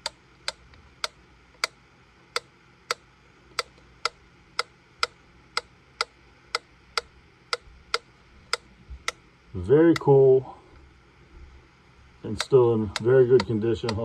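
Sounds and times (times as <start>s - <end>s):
metronome ticking: 12.3s - 14.0s.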